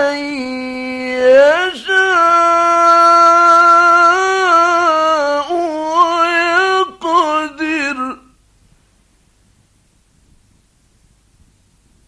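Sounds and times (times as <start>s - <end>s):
man chanting melodically: 0.0s - 8.4s.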